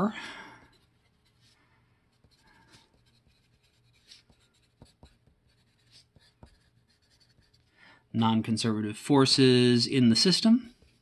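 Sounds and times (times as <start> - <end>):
pencil scratching on paper: 0.7 - 7.7, 10.6 - 11.0.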